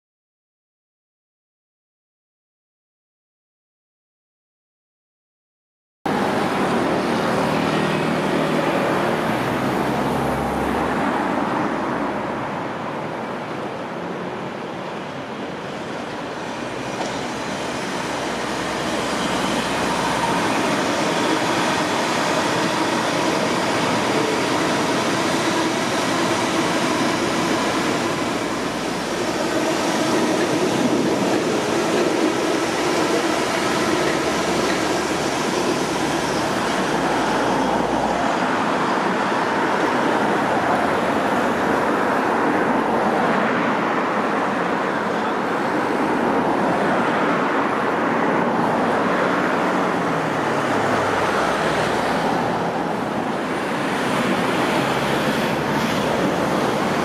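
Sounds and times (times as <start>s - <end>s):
train wheels rumbling on rails: 14.7s - 47.7s, 48.3s - 57.0s.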